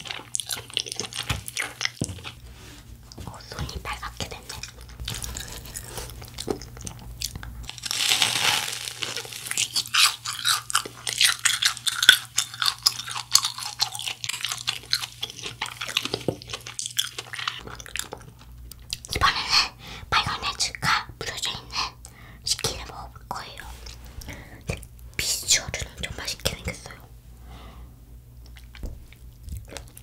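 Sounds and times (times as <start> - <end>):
crunchy chewing: 0.0 - 2.4, 3.9 - 19.1, 28.4 - 30.0.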